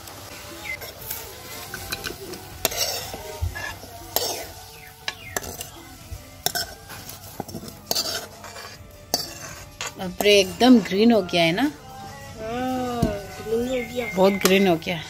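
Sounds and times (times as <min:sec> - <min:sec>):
metal spoon scraping a wok: 0:00.6 - 0:12.1.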